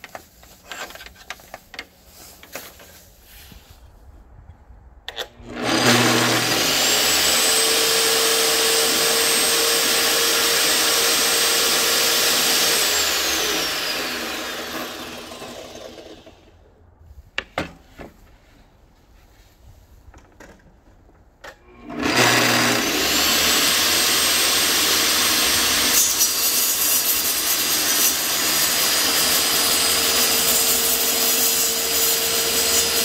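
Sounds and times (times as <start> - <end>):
table saw whining: 5.3 - 16.4, 21.6 - 33.0.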